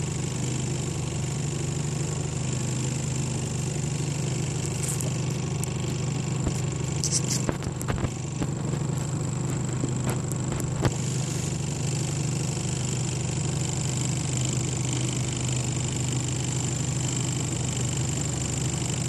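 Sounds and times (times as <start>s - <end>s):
motor idling: 0.0s - 19.0s.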